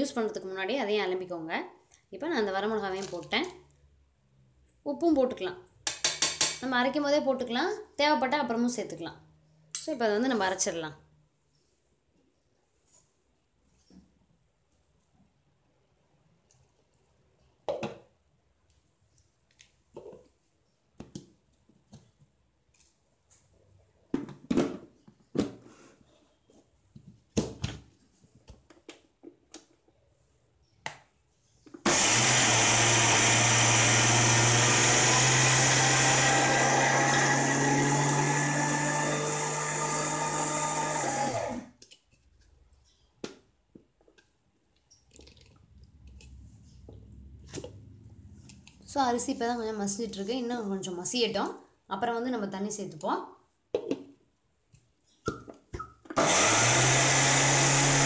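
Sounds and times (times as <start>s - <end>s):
mixer grinder motor running: 31.9s - 41.7s, 56.2s - 58.0s.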